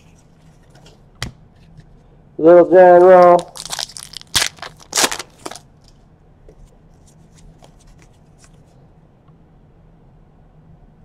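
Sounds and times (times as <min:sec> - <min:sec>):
foil wrapper crinkling and tearing: 0:03.1 - 0:05.7.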